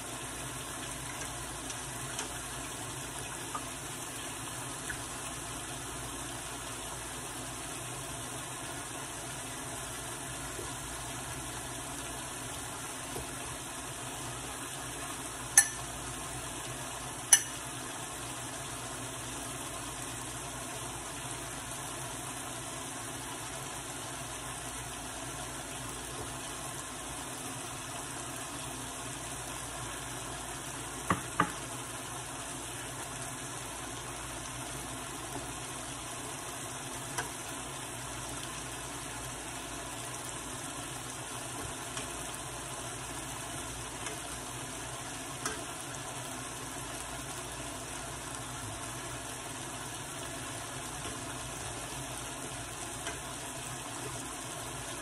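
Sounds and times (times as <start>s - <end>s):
plantains sizzling in oil: 0.0s - 55.0s
metal fork clicking on pan: 15.6s - 15.8s, 17.3s - 17.6s.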